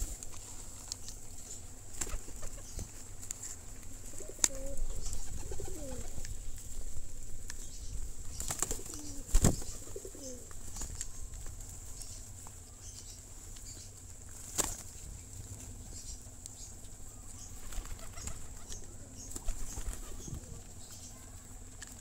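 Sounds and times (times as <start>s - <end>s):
pigeons cooing: 1.5s - 2.9s, 4.0s - 6.5s, 8.1s - 11.2s, 17.1s - 21.3s
pigeon wings flapping: 1.9s - 2.8s, 4.2s - 6.3s, 8.3s - 11.6s, 14.3s - 15.0s, 17.6s - 20.7s.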